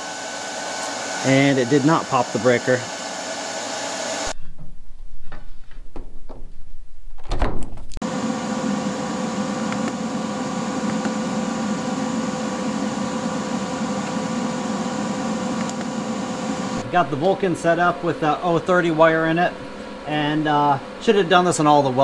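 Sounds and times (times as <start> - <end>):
welder cooling fan hum: 0.0 - 4.5, 8.0 - 22.0
loud thump: 4.4 - 7.9
knocks: 4.5 - 6.6.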